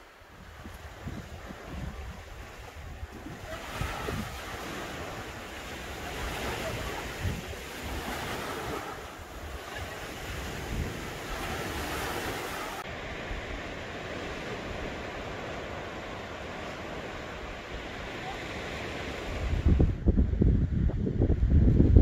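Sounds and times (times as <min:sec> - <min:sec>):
small waves washing on sand: 0:00.0 - 0:19.8
wind buffeting microphone: 0:00.3 - 0:15.9, 0:18.7 - 0:22.0.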